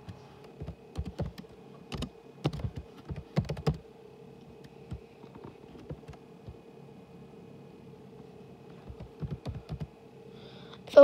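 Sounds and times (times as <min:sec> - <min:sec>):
typing on a keyboard: 0:00.5 - 0:03.8, 0:08.8 - 0:09.9.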